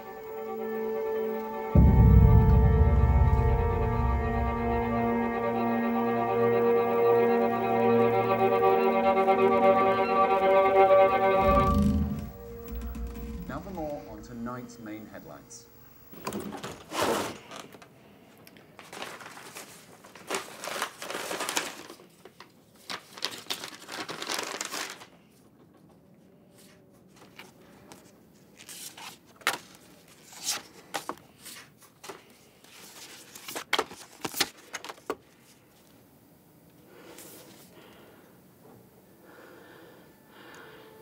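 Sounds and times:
papers rustling: 0:18.6 - 0:25.5, 0:26.6 - 0:35.6.

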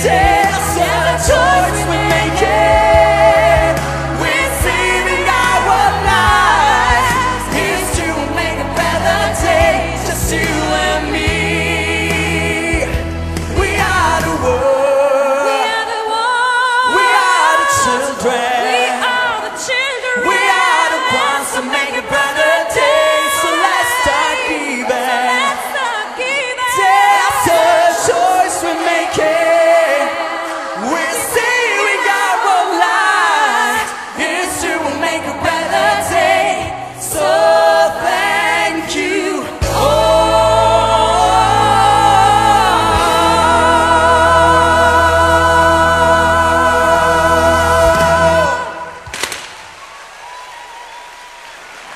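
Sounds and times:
light musical accompaniment: 0:00.0 - 0:15.5
bass: 0:00.0 - 0:15.6, 0:34.2 - 0:49.0
voices singing with vibrato: 0:00.0 - 0:49.3.

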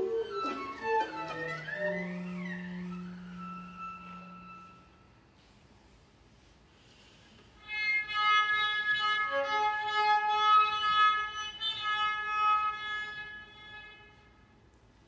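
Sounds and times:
cello bowed high note: 0:00.0 - 0:05.4.

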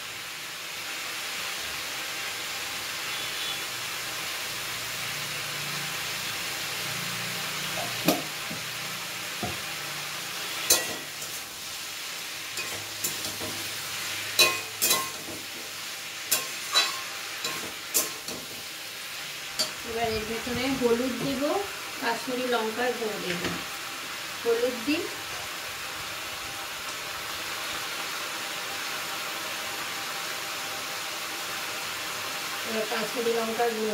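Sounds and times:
vegetables sizzling in oil: 0:00.0 - 0:33.9
metal spatula striking pan: 0:10.7 - 0:11.1, 0:14.4 - 0:15.4, 0:16.3 - 0:18.5.

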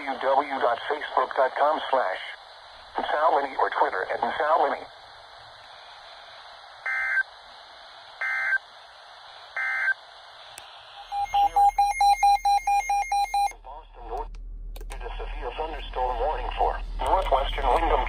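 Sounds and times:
rapid alarm beeping: 0:11.0 - 0:13.6.

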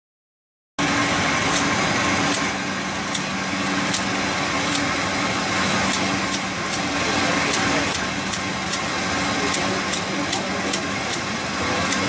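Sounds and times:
labeling machine running: 0:00.8 - 0:12.0
low machine hum: 0:00.8 - 0:12.0
light mechanical tick: 0:03.1 - 0:04.9, 0:05.8 - 0:06.9, 0:07.5 - 0:08.9, 0:09.5 - 0:12.0.

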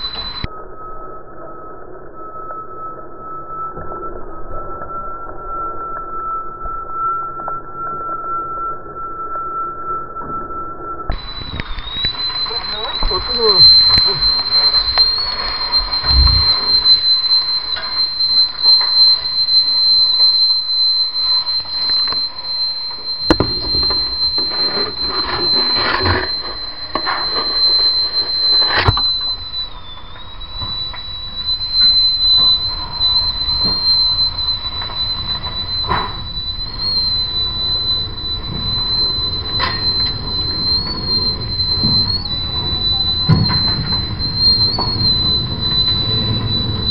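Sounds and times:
shrill alarm tone: 0:00.0 - 0:00.5, 0:11.1 - 0:46.9
rushing noise: 0:11.2 - 0:18.6, 0:21.8 - 0:29.8
sharp knocks: 0:23.3 - 0:27.7.

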